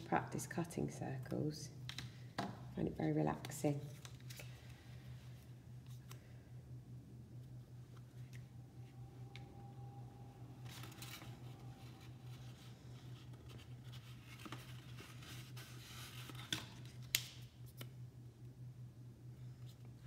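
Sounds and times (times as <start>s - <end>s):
paper rustling and sliding: 10.6s - 17.0s.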